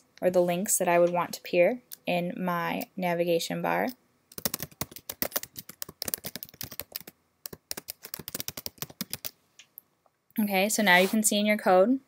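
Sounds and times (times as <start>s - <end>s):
typing on computer keyboard: 4.3s - 9.3s.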